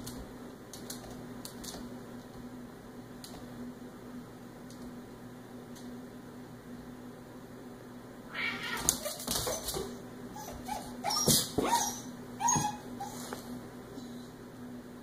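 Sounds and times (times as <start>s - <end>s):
puppy yipping and whimpering: 8.5s - 13.3s
paws scuffling on hardwood floor: 8.8s - 13.6s.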